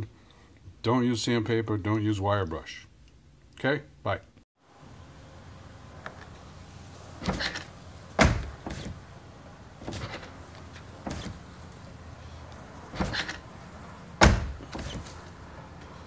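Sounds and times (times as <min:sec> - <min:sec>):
car door thunking shut: 0:07.2 - 0:09.0, 0:11.0 - 0:11.4, 0:13.0 - 0:13.4, 0:14.2 - 0:15.1.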